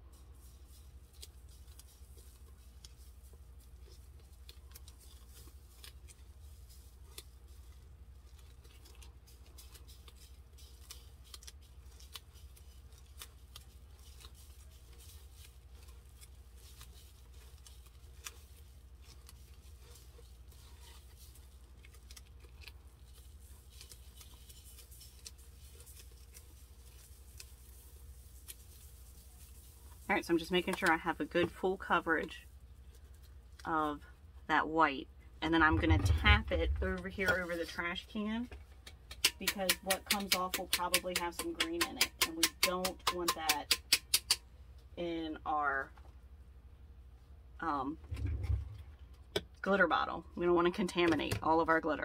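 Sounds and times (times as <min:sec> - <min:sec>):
low hum: 0:35.4 - 0:37.9, 0:48.0 - 0:49.1.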